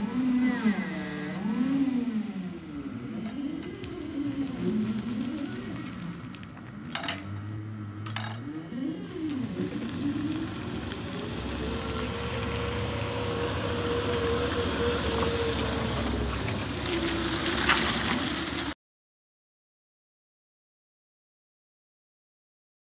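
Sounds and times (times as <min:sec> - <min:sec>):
electric forklift motor whine: 0:00.0 - 0:18.8
low hum: 0:01.0 - 0:18.4.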